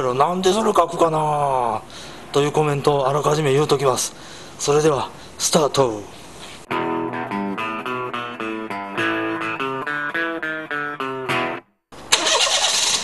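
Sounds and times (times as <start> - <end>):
plucked electric guitar jingle: 6.7 - 11.7
car engine misfiring: 12.0 - 13.0.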